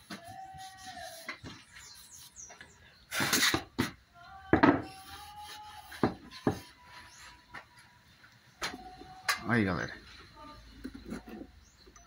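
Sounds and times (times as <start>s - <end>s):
hands rubbing wood: 0.0s - 3.7s, 4.8s - 7.7s.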